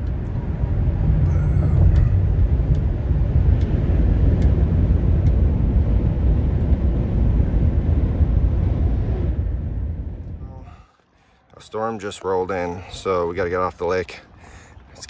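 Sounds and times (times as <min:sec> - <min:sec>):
car driving on highway: 0:00.0 - 0:10.7.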